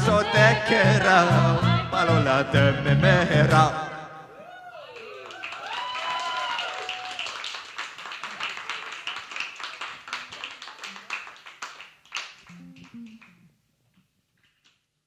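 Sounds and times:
electric bass notes: 0:00.0 - 0:04.0, 0:12.5 - 0:13.5
audience clapping: 0:04.9 - 0:13.4.

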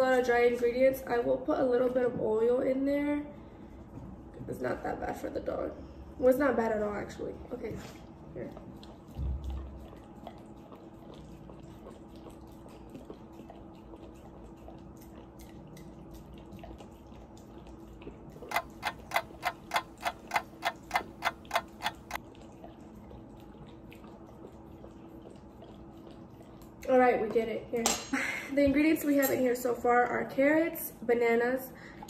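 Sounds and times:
sharp clicks: 0:18.4 - 0:22.2.

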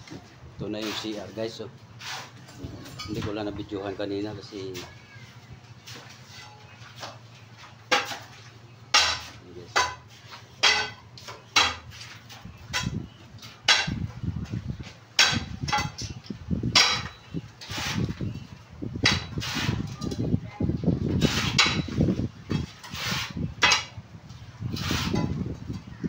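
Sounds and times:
metal tool striking concrete: 0:07.9 - 0:12.0, 0:13.6 - 0:14.0, 0:15.2 - 0:18.0, 0:19.0 - 0:19.8, 0:22.9 - 0:24.0.

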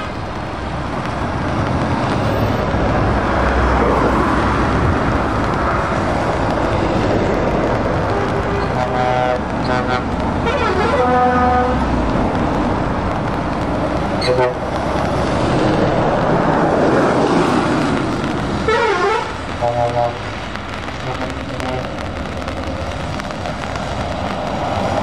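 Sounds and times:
heavy trucks driving past: 0:00.0 - 0:25.0
tyre hiss on wet road: 0:00.0 - 0:25.0
truck horn blasts: 0:08.0 - 0:11.8, 0:14.2 - 0:14.7, 0:18.7 - 0:20.3, 0:21.0 - 0:22.0.

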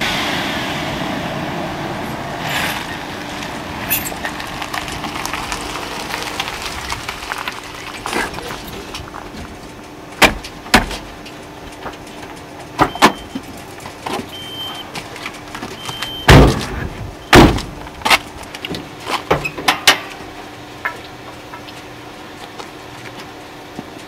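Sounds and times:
truck doors slamming shut: 0:10.2 - 0:11.1, 0:15.8 - 0:17.8.

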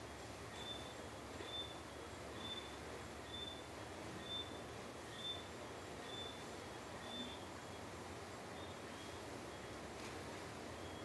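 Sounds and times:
steady low hiss: 0:00.0 - 0:11.0
high chirps of night callers: 0:00.5 - 0:07.5.

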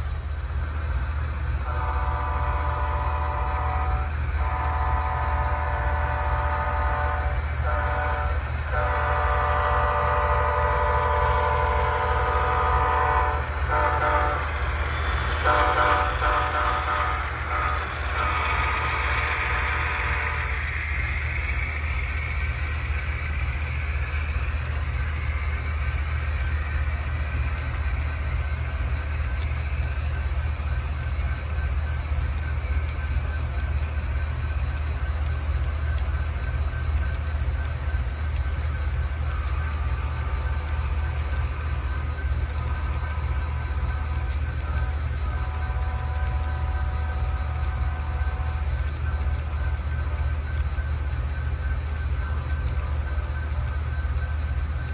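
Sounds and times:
locomotive horn chord: 0:01.7 - 0:14.4.

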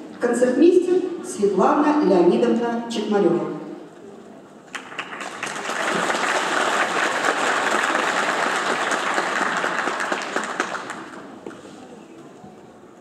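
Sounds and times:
audience applauding: 0:04.7 - 0:11.4.

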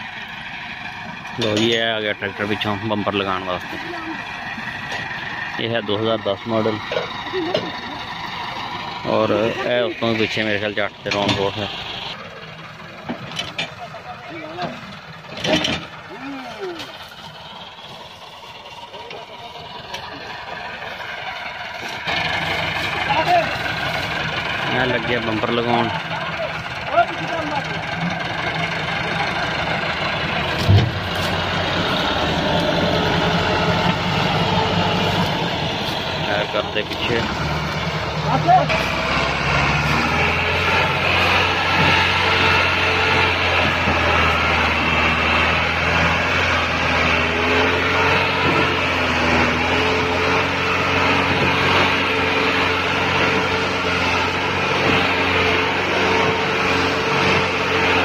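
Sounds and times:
tractor diesel engine running: 0:00.0 - 0:58.0
loud low thump: 0:30.6 - 0:31.2.

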